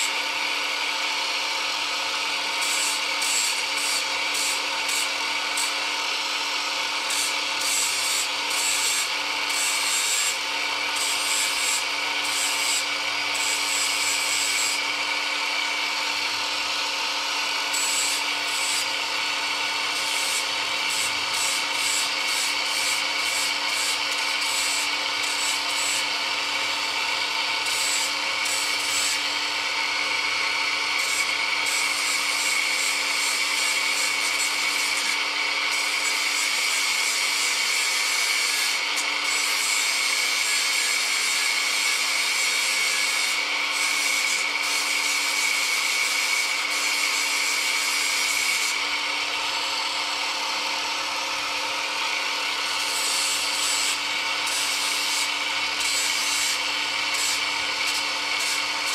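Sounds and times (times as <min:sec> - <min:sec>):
rotary tool running: 0:00.0 - 0:58.9.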